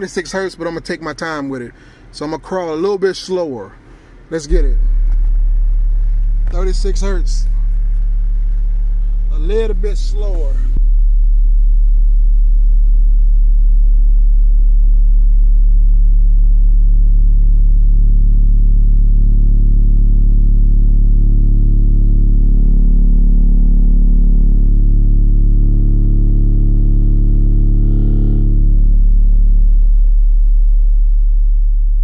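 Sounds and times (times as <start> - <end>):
subwoofer playing deep test tone: 4.4 - 32.0
buzzy distortion over deep tone: 4.5 - 32.0.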